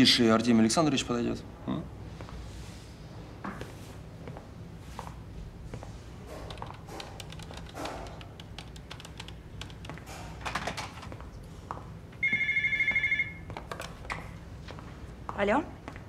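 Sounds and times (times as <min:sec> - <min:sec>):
telephone ringing: 0:12.2 - 0:13.6.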